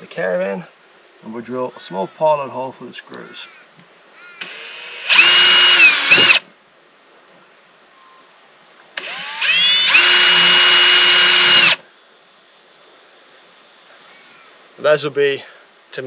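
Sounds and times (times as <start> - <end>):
cordless drill whining: 4.4 - 6.4, 9.0 - 11.8.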